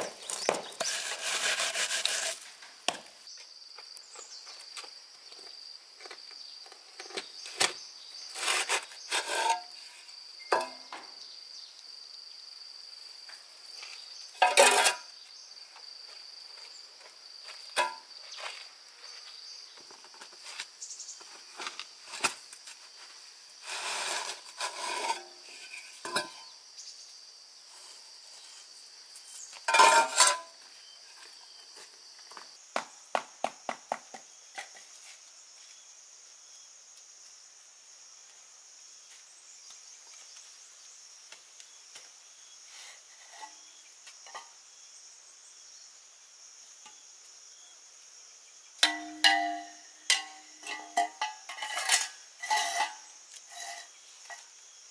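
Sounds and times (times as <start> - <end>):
objects being handled: 0.0 - 3.2, 6.0 - 11.0, 23.6 - 26.5, 29.5 - 30.5, 48.8 - 54.5
insects calling: 0.0 - 54.9.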